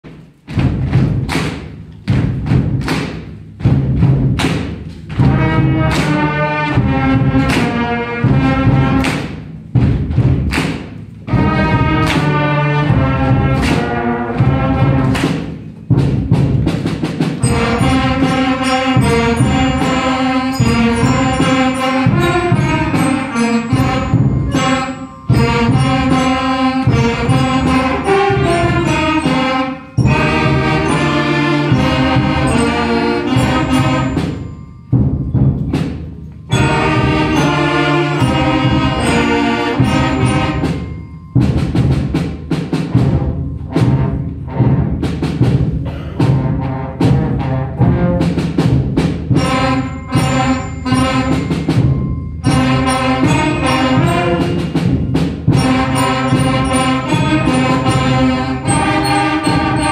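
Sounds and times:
brass and woodwind chords: 0:17.4 - 0:34.4, 0:36.5 - 0:40.8, 0:49.4 - 0:54.9, 0:55.6 - 0:59.9
flute parts: 0:23.3 - 0:26.7.

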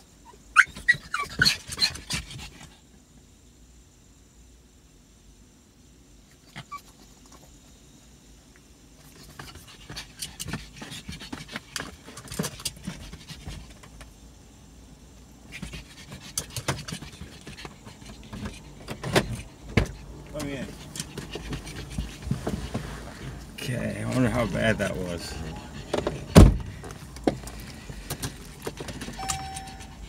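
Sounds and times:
dog panting: 0:09.1 - 0:13.9, 0:15.5 - 0:30.0.

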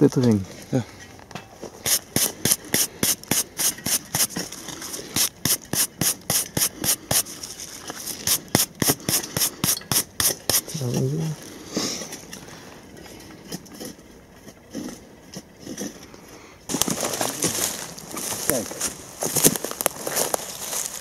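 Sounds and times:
gloved hand rubbing rusted iron: 0:01.8 - 0:10.9.

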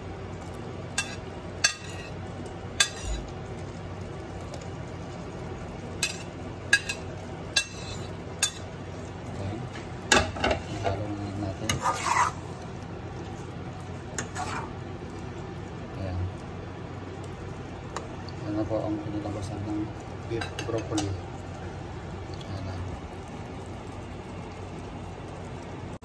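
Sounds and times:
steady low hiss: 0:00.0 - 0:26.0
spatula scraping a pot: 0:01.0 - 0:02.2, 0:07.6 - 0:08.6, 0:11.6 - 0:12.6, 0:14.2 - 0:14.8.

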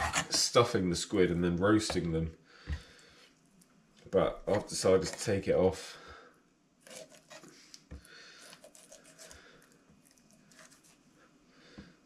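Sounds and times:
knife scraping on chopping board: 0:00.0 - 0:00.5, 0:06.8 - 0:07.5, 0:08.4 - 0:09.4.

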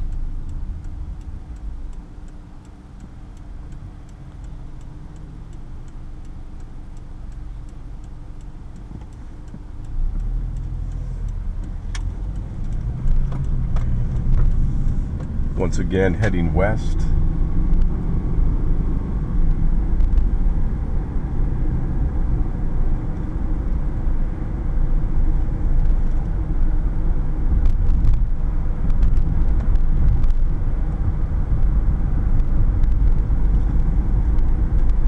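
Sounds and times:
car engine and road noise: 0:00.0 - 0:35.0.

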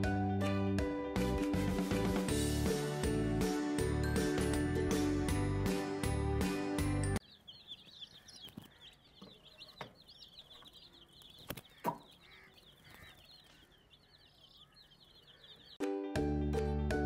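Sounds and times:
baby chicks peeping: 0:06.8 - 0:15.9.

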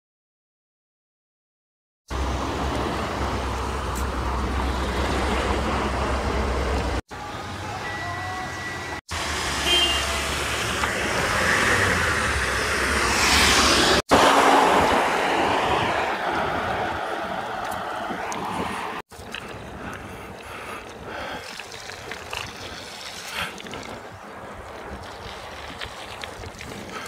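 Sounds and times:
cars and trucks driving past: 0:02.1 - 0:27.0
box truck passing close: 0:08.8 - 0:19.0.

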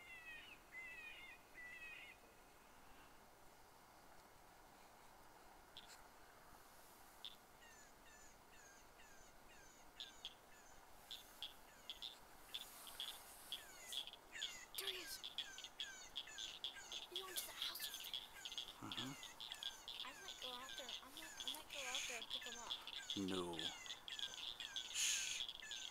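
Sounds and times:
electronic predator call chirps: 0:07.2 - 0:25.9.

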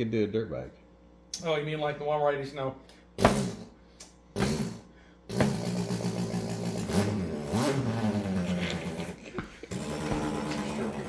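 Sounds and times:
man imitating engine with mouth: 0:03.2 - 0:11.0.

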